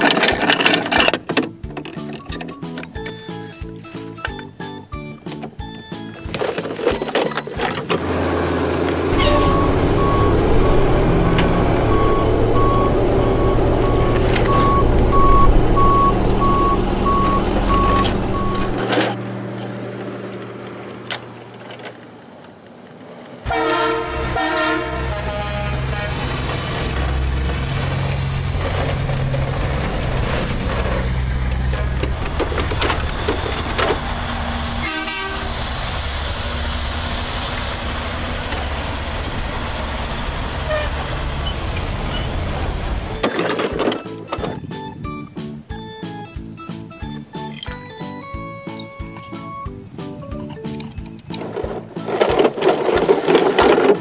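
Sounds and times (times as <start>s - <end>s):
truck engine running: 0.0s - 22.6s, 24.0s - 54.0s
truck horn: 8.0s - 18.8s, 23.4s - 27.2s, 34.7s - 35.7s, 40.5s - 41.4s
reversing alarm beeping: 9.1s - 18.8s, 32.8s - 34.6s, 43.1s - 49.8s.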